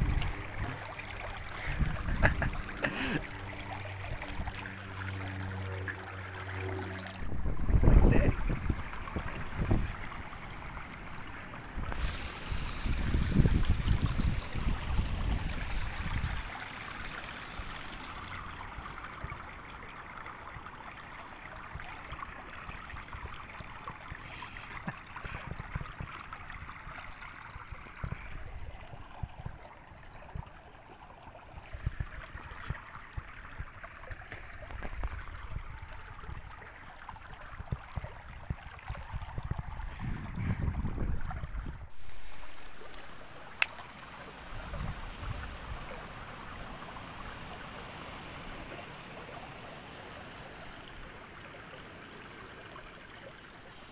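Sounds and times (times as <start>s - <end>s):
wind buffeting microphone: 0.0s - 2.8s, 7.2s - 16.5s, 34.6s - 42.0s, 44.5s - 46.6s
stream trickling over stones: 0.0s - 53.9s.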